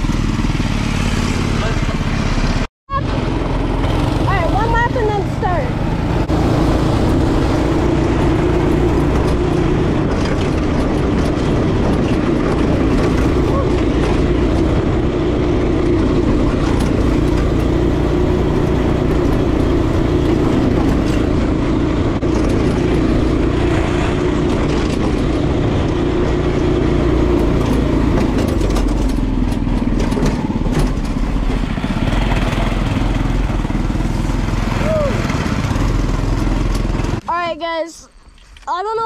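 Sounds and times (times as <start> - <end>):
go-kart engine running: 0.0 - 37.8
rattling clicks from kart frame: 27.3 - 31.4, 36.5 - 37.2.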